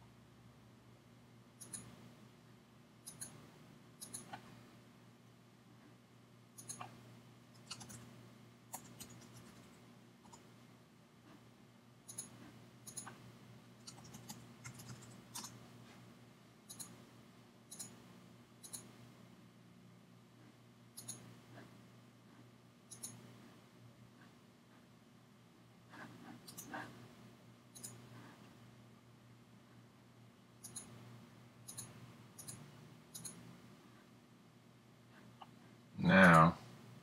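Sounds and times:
faint steady hum: 0:00.0 - 0:37.0
mouse clicks and keystrokes: 0:01.6 - 0:02.1, 0:03.0 - 0:04.5, 0:06.6 - 0:07.0, 0:07.6 - 0:08.1, 0:08.7 - 0:10.5, 0:12.1 - 0:15.6, 0:16.7 - 0:17.0, 0:17.7 - 0:18.0, 0:18.6 - 0:19.0, 0:21.0 - 0:21.4, 0:22.9 - 0:23.3, 0:26.4 - 0:26.8, 0:27.7 - 0:28.1, 0:30.6 - 0:31.0, 0:31.6 - 0:33.5.

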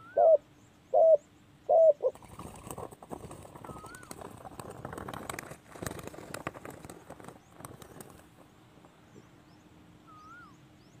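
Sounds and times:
small birds chirping: 0:00.0 - 0:04.6, 0:05.8 - 0:11.0
rapid crackling and rustling: 0:02.1 - 0:09.2
whistled bird call: 0:10.0 - 0:10.6.

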